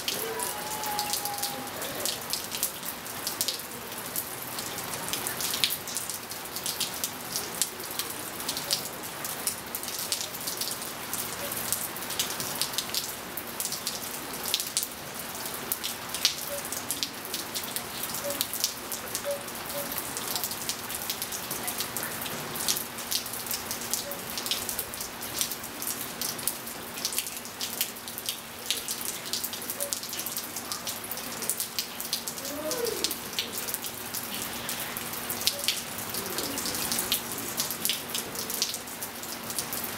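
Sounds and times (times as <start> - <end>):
rain falling on pool and tiles: 0.0 - 39.9
water drops ticking: 16.2 - 21.2, 35.4 - 37.2.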